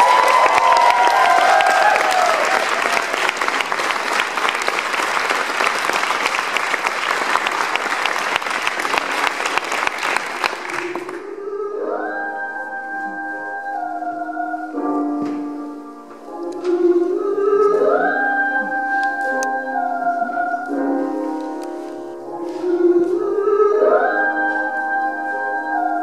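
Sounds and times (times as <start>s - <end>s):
audience clapping: 0.0s - 11.2s
music with long held notes: 10.8s - 26.0s.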